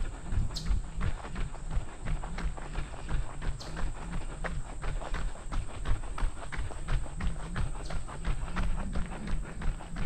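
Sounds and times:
footsteps on dirt trail: 0:00.0 - 0:10.0.

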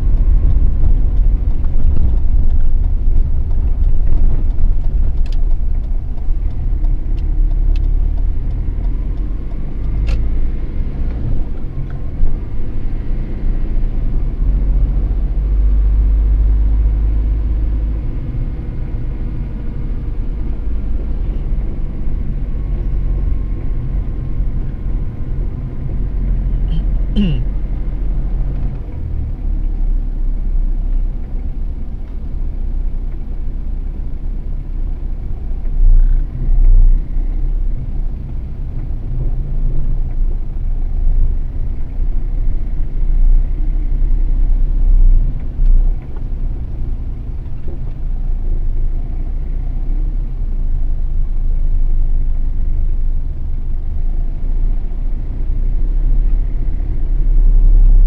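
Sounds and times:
car driving low rumble: 0:00.0 - 0:58.0.

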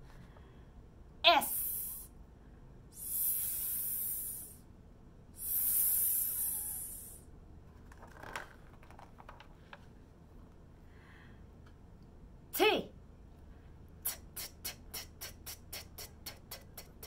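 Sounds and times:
woman making hissing sound: 0:01.3 - 0:02.1, 0:02.9 - 0:04.6, 0:05.4 - 0:07.3, 0:14.0 - 0:17.0.

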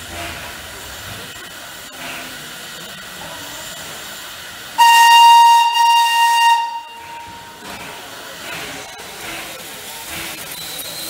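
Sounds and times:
steam hiss: 0:00.0 - 0:11.0
steam whistle blast: 0:04.8 - 0:07.6.

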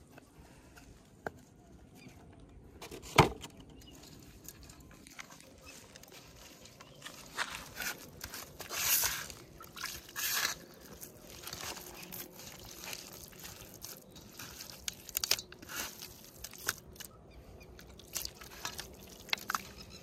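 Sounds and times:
wet squelching of bait mash: 0:08.2 - 0:20.0.

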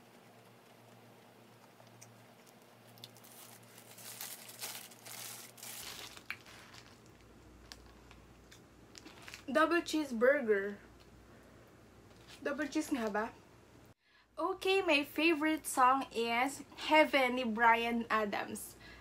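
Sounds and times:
paper wrapper crinkling: 0:01.8 - 0:09.5.

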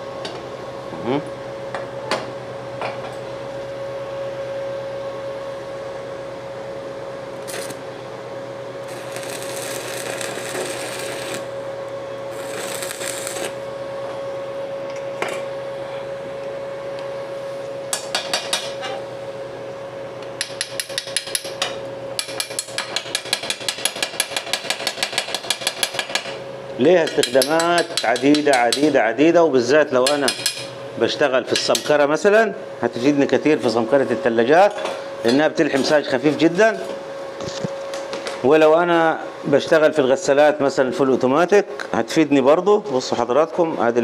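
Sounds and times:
steady hum: 0:00.0 - 0:44.0
wire brush scraping weld: 0:07.4 - 0:07.8, 0:08.8 - 0:11.5, 0:12.3 - 0:13.6
welding arc crackling and hissing: 0:07.4 - 0:07.9, 0:08.8 - 0:11.6, 0:12.2 - 0:13.7.

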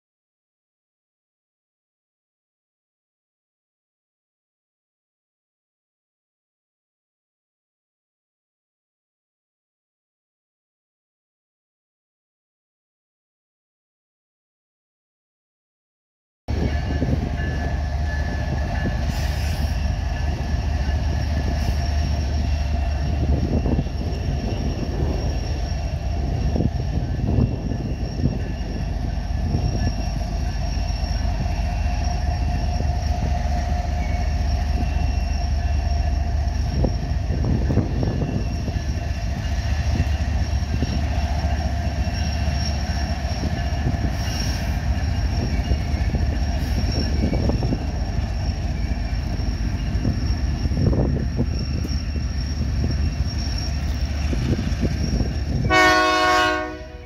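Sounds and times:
train cars rumbling on rails: 0:16.5 - 0:57.0
thin high tones: 0:16.8 - 0:55.7.

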